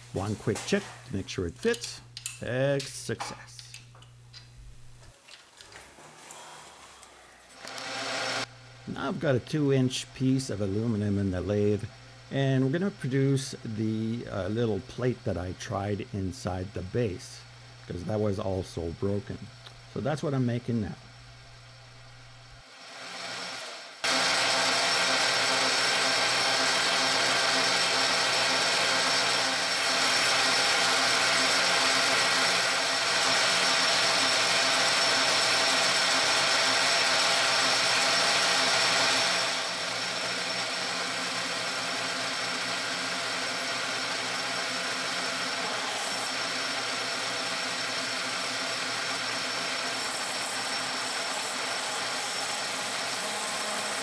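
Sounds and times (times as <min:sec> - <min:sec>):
metal lathe cutting aluminium: 0:22.8 - 0:54.0.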